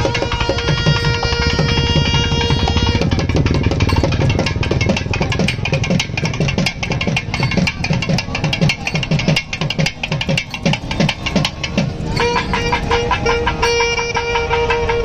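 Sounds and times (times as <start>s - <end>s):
fast dense drumming: 0.0s - 14.3s
sustained melody: 0.0s - 15.0s.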